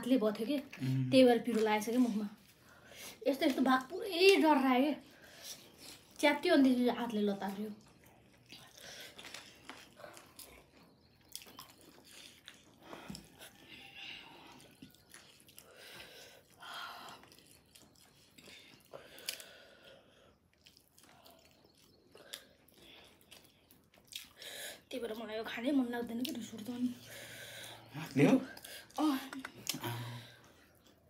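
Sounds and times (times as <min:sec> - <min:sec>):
person chewing food: 0:07.7 - 0:24.9, 0:26.2 - 0:31.0.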